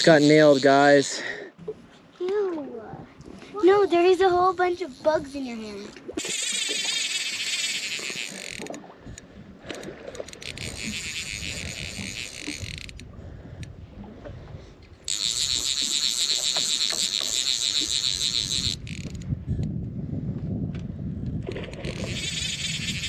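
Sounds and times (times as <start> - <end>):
fly reel drag buzzing clicks: 0.0 - 1.1, 3.8 - 13.7, 15.1 - 19.3, 21.5 - 23.0.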